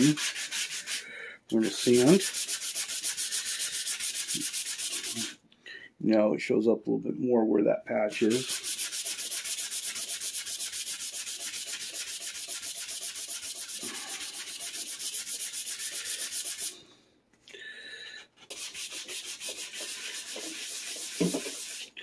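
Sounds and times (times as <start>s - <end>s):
sandpaper rasping on wood: 0.0s - 1.0s, 1.6s - 5.4s, 8.1s - 16.8s, 18.5s - 21.9s.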